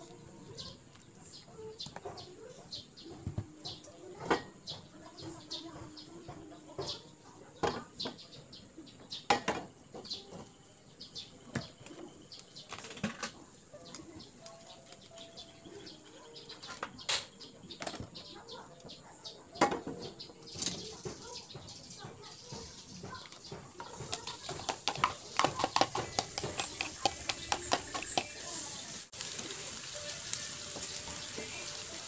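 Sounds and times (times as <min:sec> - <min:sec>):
kitchen handling clicks and taps: 0:09.3 - 0:10.5, 0:16.5 - 0:18.2, 0:19.6 - 0:28.3.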